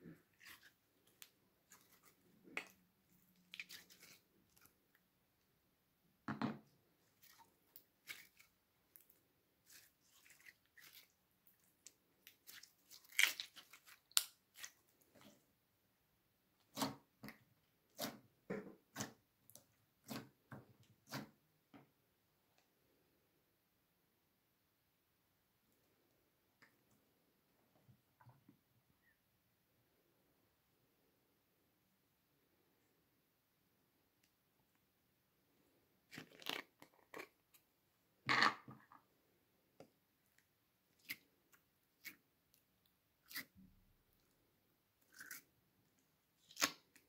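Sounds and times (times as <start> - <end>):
slime squelching: 0.0 - 5.1, 7.0 - 15.5.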